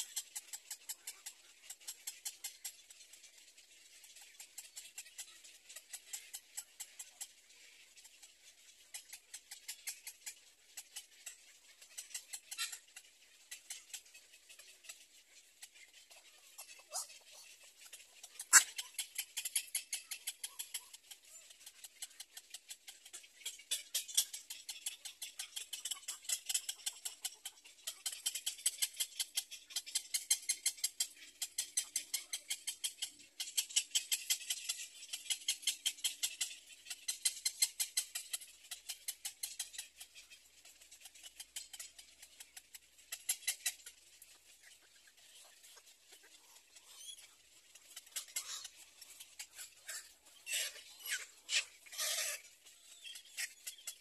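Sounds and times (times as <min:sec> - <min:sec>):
high-pitched animal chatter: 0:00.0 - 0:03.2, 0:03.9 - 0:54.0.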